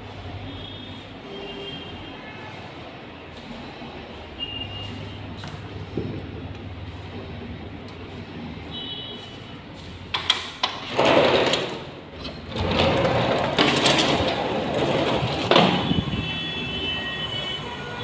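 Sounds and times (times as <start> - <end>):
window panes sliding along tracks: 10.7 - 15.7.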